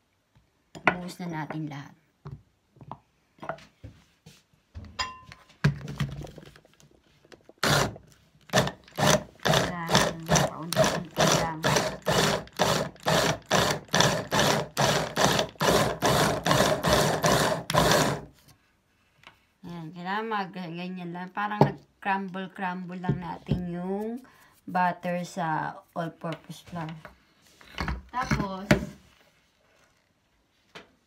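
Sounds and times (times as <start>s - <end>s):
hand blender chopper pulsing: 7.6s - 18.3s.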